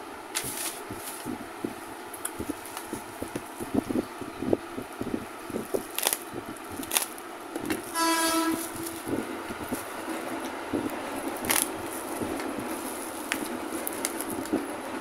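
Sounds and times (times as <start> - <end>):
bubble wrap crinkling: 5.6 - 14.8
short horn-like tone: 7.9 - 9.0.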